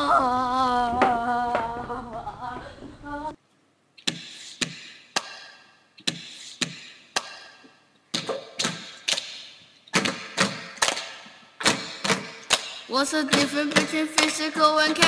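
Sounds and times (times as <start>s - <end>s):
hand slaps and claps: 4.1s - 14.4s.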